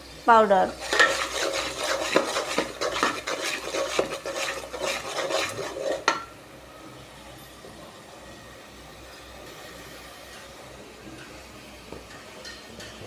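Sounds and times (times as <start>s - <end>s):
metal ladle scraping metal pot: 0.8s - 6.3s.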